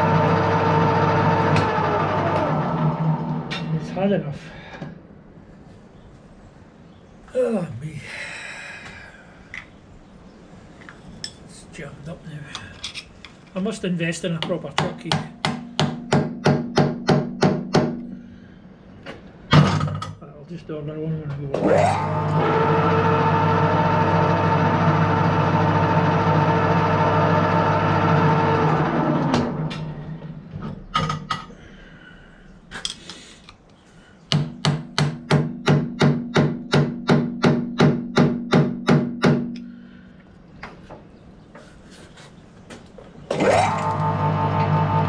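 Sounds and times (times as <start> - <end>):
metal lathe running: 0.0 - 3.4, 21.6 - 29.6, 43.3 - 45.0.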